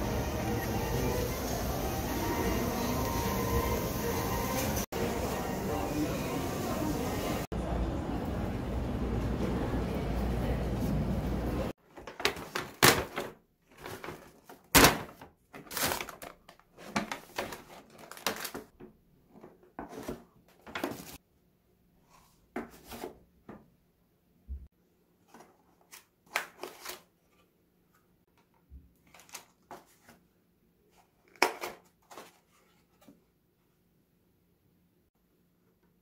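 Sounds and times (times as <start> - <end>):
paper bag crinkling: 11.9 - 18.7.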